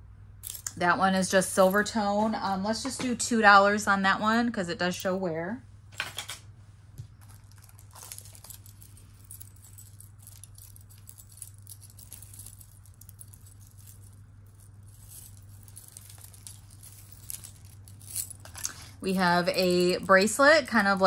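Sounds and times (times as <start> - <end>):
steady low hum: 0.0 - 21.0
jewelry clinking and rattling: 0.4 - 0.8, 7.1 - 21.0.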